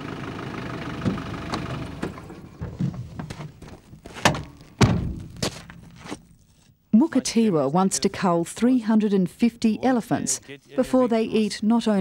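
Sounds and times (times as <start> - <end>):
engine idling: 0.0 - 3.8
footsteps on dirt: 2.5 - 6.8
car door thunks: 4.2 - 5.5.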